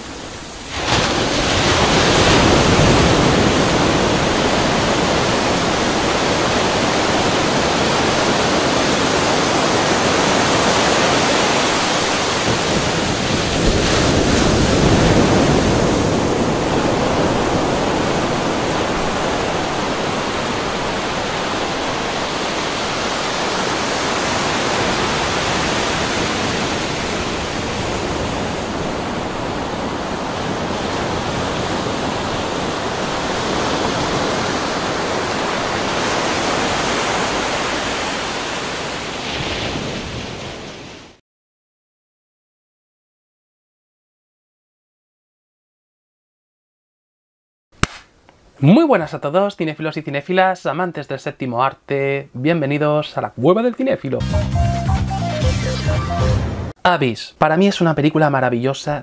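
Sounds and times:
ocean water rushing: 0.0 - 41.2.

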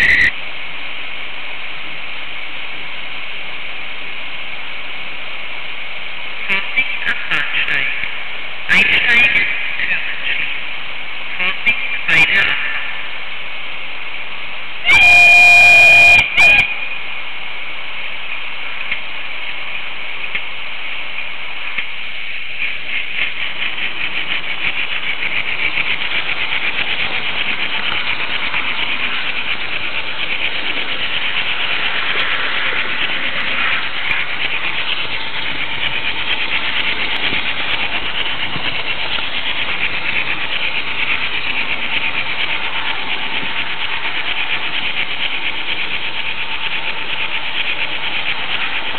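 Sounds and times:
locomotive toot: 14.8 - 16.9
wheels ticking over rail joints: 18.1 - 48.9
model train wheels rattling on rails: 19.6 - 48.9.

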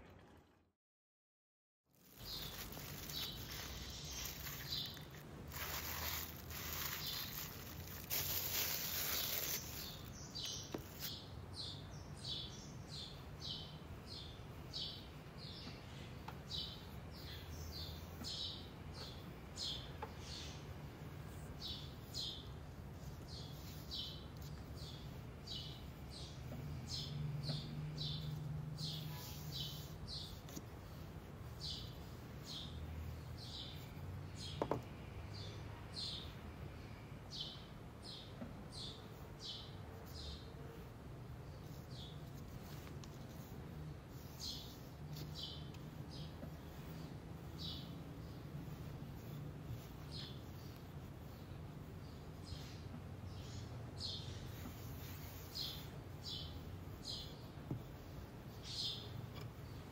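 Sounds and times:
plastic cling wrap crinkling: 1.9 - 11.1.

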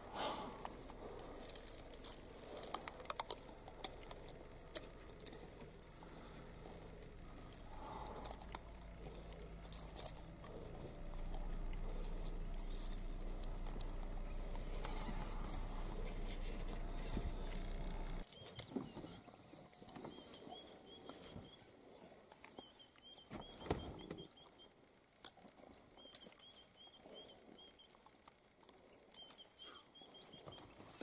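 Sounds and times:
vehicle engine idling: 0.0 - 31.0
sharp clicks: 0.6 - 6.2
bird chirping: 1.1 - 24.8, 25.9 - 28.0, 28.8 - 31.0.

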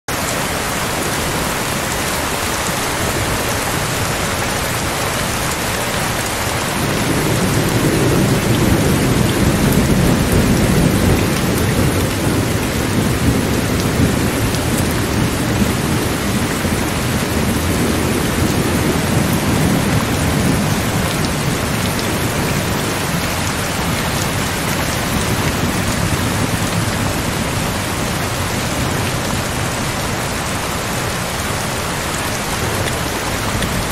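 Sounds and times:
steady rain falling: 0.1 - 33.9
low rumble of thunder: 6.6 - 30.0.

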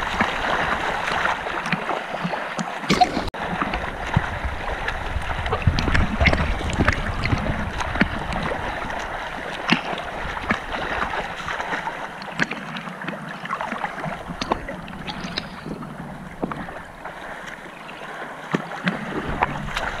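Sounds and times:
rushing water: 0.0 - 20.0
water splashing: 0.0 - 20.0
low rumble: 19.1 - 20.0.

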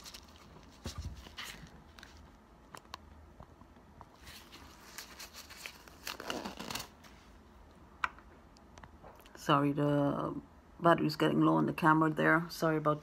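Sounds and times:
disposable gloves rustling: 0.0 - 2.4, 4.0 - 7.4.

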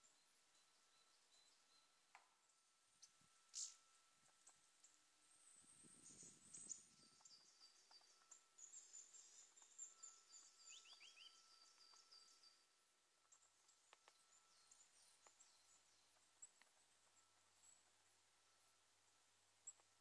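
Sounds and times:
songbird calls: 3.0 - 3.9, 5.6 - 17.9.

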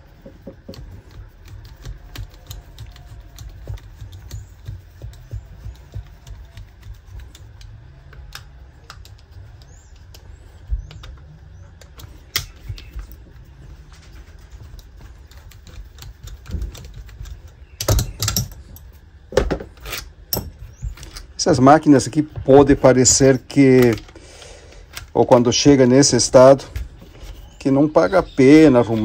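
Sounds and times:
nut driver metallic clicks: 15.4 - 18.9.

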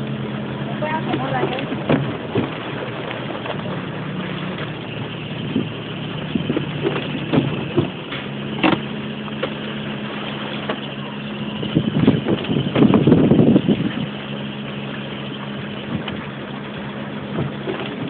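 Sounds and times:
vehicle engine running: 0.0 - 18.0
knocks and clatter: 6.4 - 9.6.

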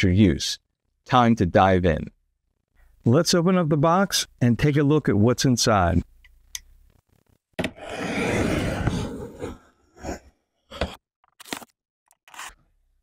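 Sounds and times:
box cutter slitting tape: 11.4 - 12.6.

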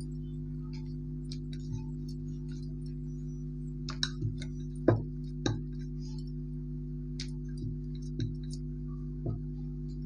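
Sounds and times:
steady low hum: 0.0 - 10.0
rolling pin knocking on surface: 3.9 - 5.8, 7.2 - 8.6.

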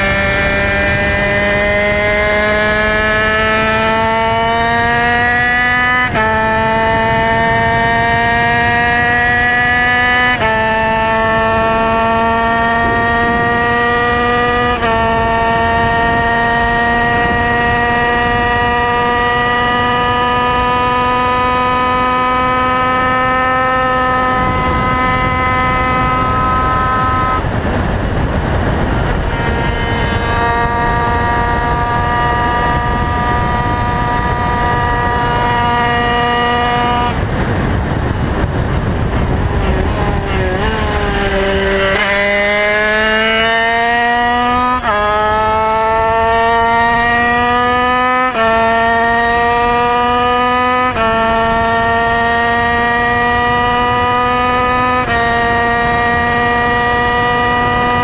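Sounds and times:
race motorcycle engine revving: 0.0 - 58.0
wind rushing over microphone: 0.0 - 58.0.

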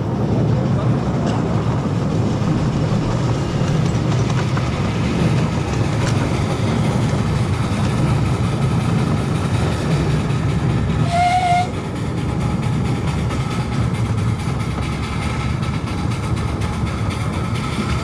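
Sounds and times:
locomotive rumbling: 0.0 - 18.0
locomotive horn toot: 11.0 - 11.8.

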